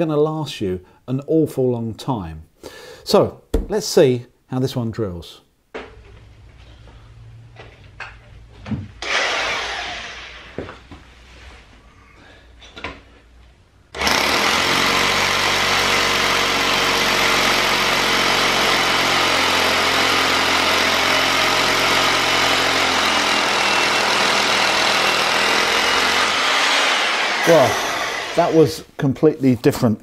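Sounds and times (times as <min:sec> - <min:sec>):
hammer drill boring into concrete: 0:09.0 - 0:10.6, 0:14.0 - 0:28.6.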